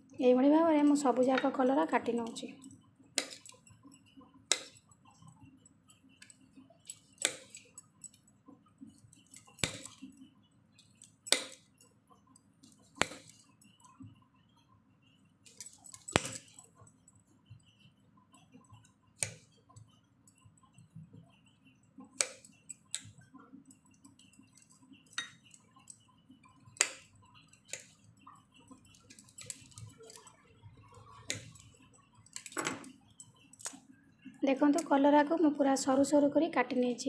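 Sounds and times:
knife clicking on stone: 3.2 - 4.9, 6.2 - 8.2, 9.0 - 10.1, 10.8 - 11.8, 12.6 - 13.6, 15.5 - 16.7, 18.8 - 19.5, 22.2 - 23.2, 23.8 - 33.8.

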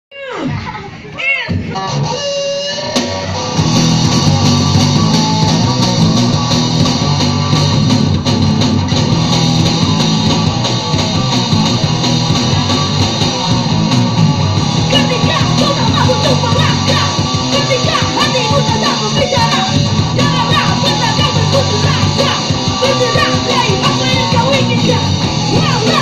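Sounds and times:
live rock band playing: 1.5 - 26.0
person singing: 14.9 - 26.0.

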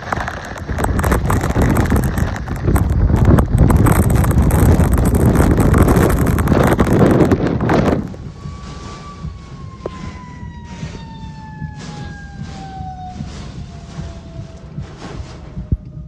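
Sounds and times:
low rumble: 0.0 - 16.0
wind rushing loudly: 0.6 - 16.0
siren winding down: 8.0 - 16.0.

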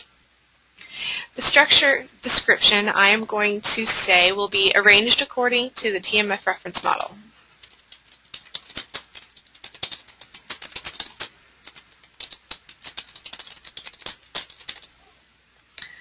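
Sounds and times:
keyboard typing clicks: 6.8 - 14.9.

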